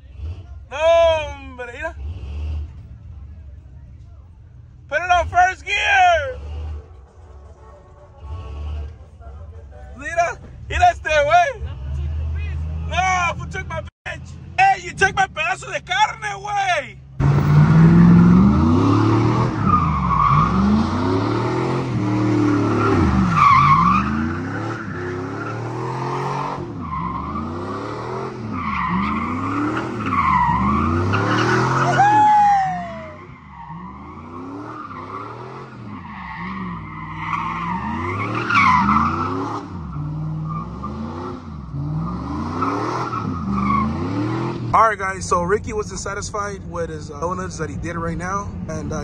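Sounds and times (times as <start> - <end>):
truck engine revving: 0.0 - 3.8, 4.7 - 9.4, 10.0 - 16.2, 17.0 - 49.0
tyres squealing on pavement: 18.7 - 41.1, 42.0 - 44.6.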